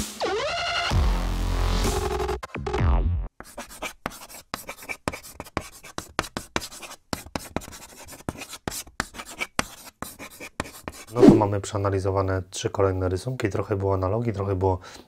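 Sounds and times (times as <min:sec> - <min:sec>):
short scratchy strokes: 0:11.1 - 0:11.5.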